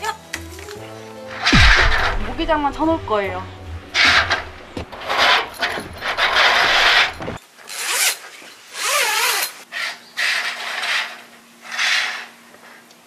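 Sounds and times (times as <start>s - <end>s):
mesh curtains swishing on rail: 5.0s - 9.6s.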